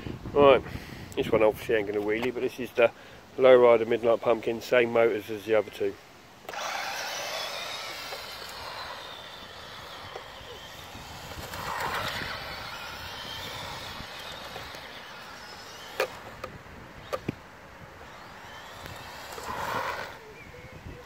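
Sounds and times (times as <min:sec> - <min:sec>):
sharp clicks: 0:06.4 - 0:17.4, 0:18.0 - 0:19.9
tyres running on asphalt: 0:06.5 - 0:20.2
electric motor whining: 0:06.5 - 0:20.6.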